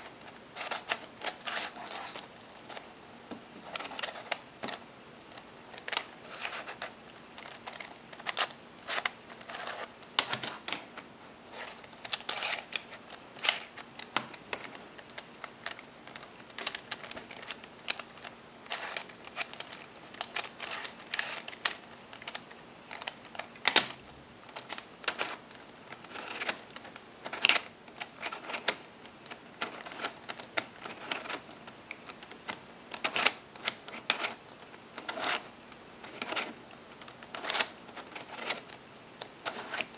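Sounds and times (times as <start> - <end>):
plastic puzzle layers clicking: 15.4 - 34.4, 39.4 - 39.9.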